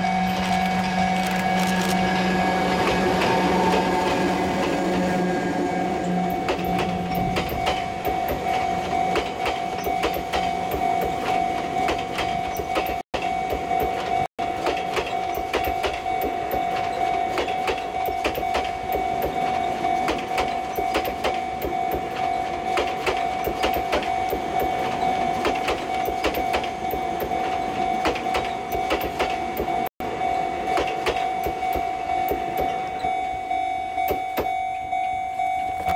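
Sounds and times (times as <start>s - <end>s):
train wheels clicking over rail joints: 6.3s - 29.9s, 30.7s - 33.1s.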